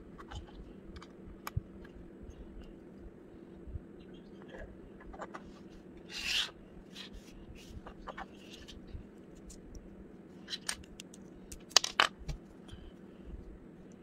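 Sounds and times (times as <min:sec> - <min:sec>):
plastic bricks clicking: 0:10.5 - 0:12.2.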